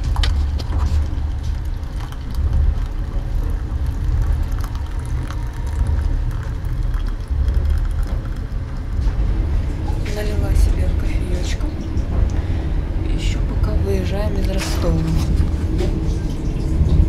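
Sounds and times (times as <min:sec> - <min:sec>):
water pouring into a plastic mug: 0:00.0 - 0:09.2
loud low rumble: 0:00.0 - 0:17.0.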